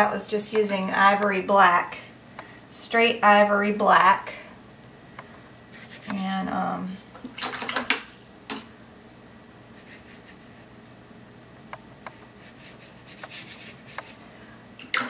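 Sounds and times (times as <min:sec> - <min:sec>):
brush on paper: 0:05.7 - 0:06.3, 0:09.7 - 0:10.7, 0:12.1 - 0:14.2
paintbrush scrapes: 0:05.7 - 0:06.4, 0:09.7 - 0:10.7, 0:12.1 - 0:14.2.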